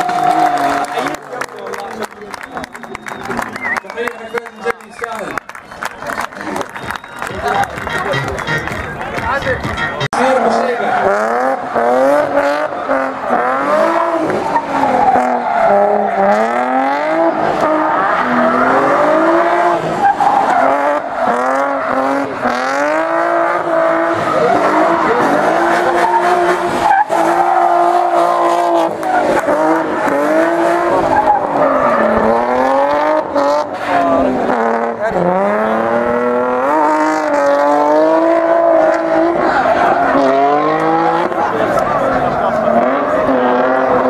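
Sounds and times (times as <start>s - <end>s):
car engine revving hard: 0.0s - 1.3s, 10.2s - 44.0s
tyres squealing on asphalt: 0.0s - 44.0s.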